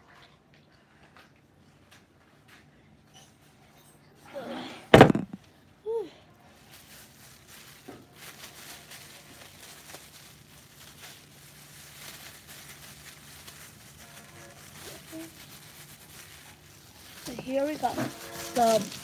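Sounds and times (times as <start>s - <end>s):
plastic gloves crinkling: 5.0s - 5.4s, 6.5s - 19.0s.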